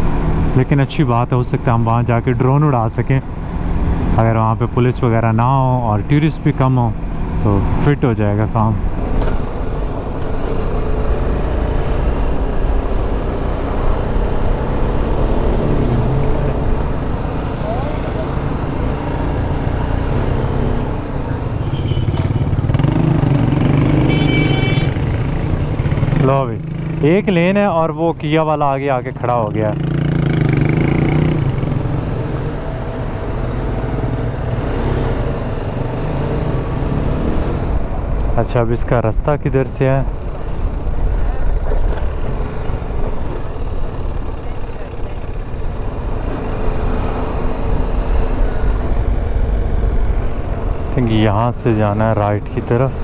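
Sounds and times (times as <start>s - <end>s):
motorcycle engine running: 9.6s - 27.6s.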